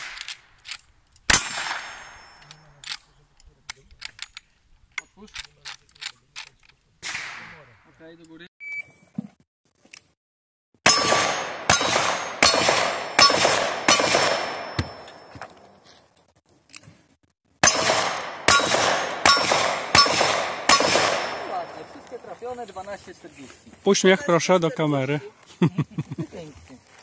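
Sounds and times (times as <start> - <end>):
steel plate ringing: 1.3 - 2.6, 10.9 - 15.4, 17.6 - 22.0
revolver shots: 17.6 - 21.9.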